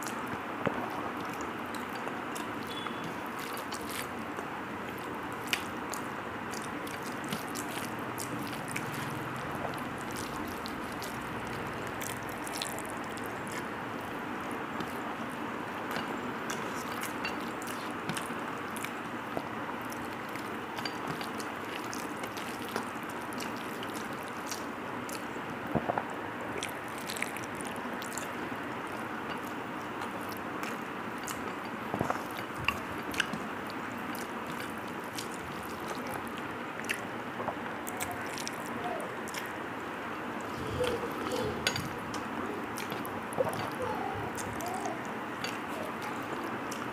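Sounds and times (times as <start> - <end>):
fingers mixing rice on steel plate: 0.0 - 24.7
person chewing: 0.0 - 39.7, 40.4 - 46.9.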